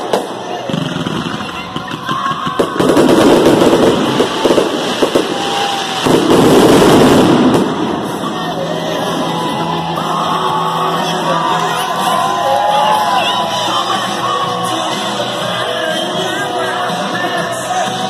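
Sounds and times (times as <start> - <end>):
fireworks bursting with crackling: 0.0 - 9.4.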